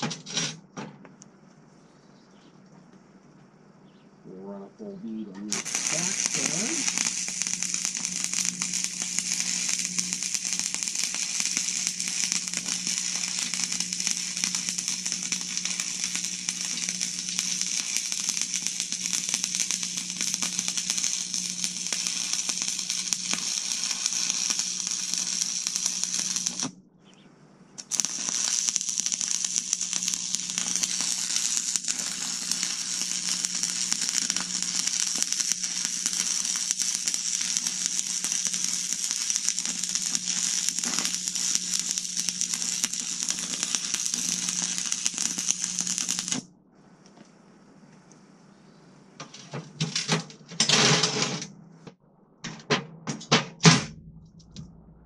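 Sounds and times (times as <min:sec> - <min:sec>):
welder low hum: 0:04.2 - 0:50.0, 0:53.9 - 0:55.0
welding arc crackling and sizzling: 0:05.4 - 0:26.8, 0:27.8 - 0:46.5.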